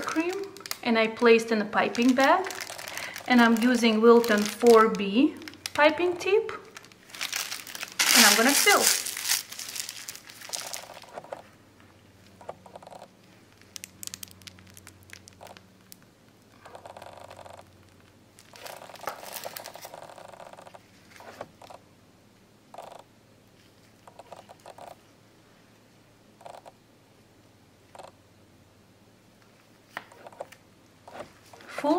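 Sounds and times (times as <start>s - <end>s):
plastic piping bag crinkling: 0.0s - 11.4s, 13.2s - 16.5s, 17.8s - 21.3s
gloved hands rustling: 0.0s - 11.5s, 18.4s - 21.5s.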